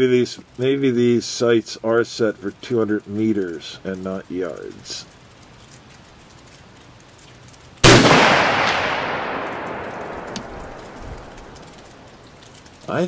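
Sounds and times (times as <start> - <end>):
rifle shot with long echo: 7.8 - 12.3.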